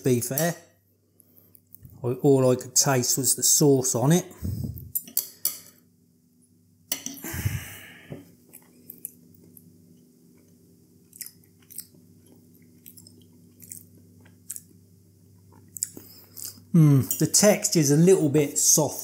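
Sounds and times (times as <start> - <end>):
person chewing: 7.4 - 17.2.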